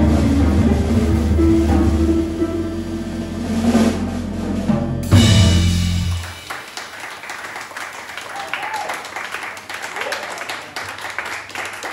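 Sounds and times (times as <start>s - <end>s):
jazz trio playing: 0.0s - 6.6s
cymbal crash: 5.0s - 6.5s
scattered clapping: 6.1s - 11.9s.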